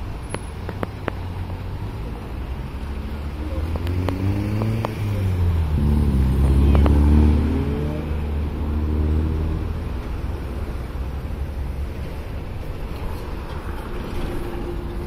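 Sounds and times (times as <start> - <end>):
traffic rumble: 0.0 - 15.0
car accelerating past: 2.6 - 11.2.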